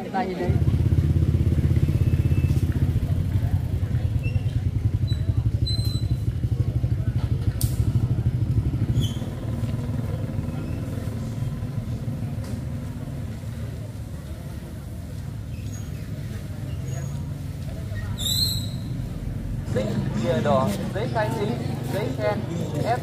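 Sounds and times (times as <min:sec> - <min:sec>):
small engine running: 0:00.4 - 0:14.6.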